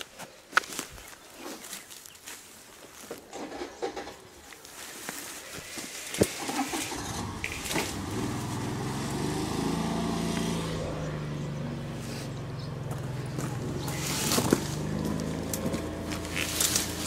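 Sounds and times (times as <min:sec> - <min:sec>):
car engine running: 0:06.4 - 0:17.0.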